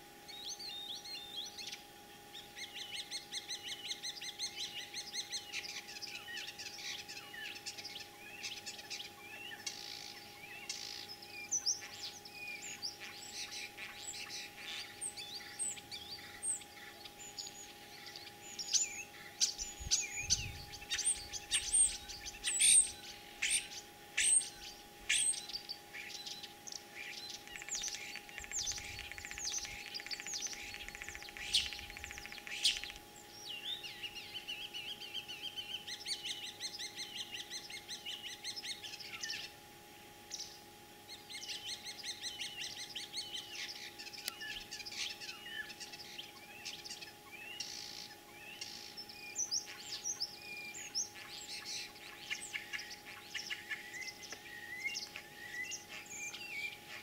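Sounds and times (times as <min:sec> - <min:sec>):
starling singing: 0:08.4 - 0:26.2.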